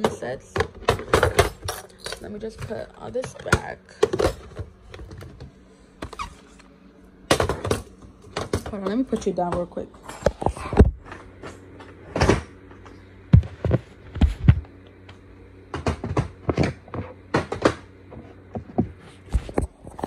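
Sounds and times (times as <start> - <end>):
plastic cases knocking on desk: 7.3 - 8.8, 15.7 - 17.8.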